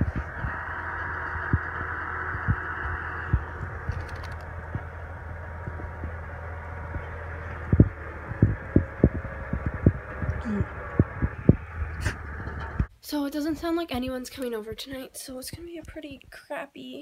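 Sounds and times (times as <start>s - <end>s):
tractor engine droning: 0.0s - 12.9s
low thumps on microphone: 3.3s - 12.9s.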